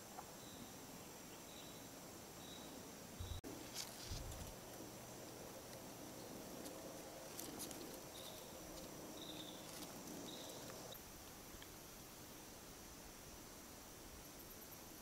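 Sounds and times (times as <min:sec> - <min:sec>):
high insect drone: 0:00.0 - 0:15.0
leaves rustling and clicking: 0:03.4 - 0:11.8.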